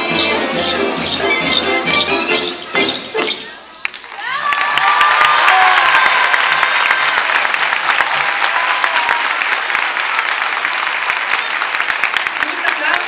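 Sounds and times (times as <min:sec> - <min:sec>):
voices cheering: 0:03.4 - 0:11.8
audience clapping: 0:03.8 - 0:13.0.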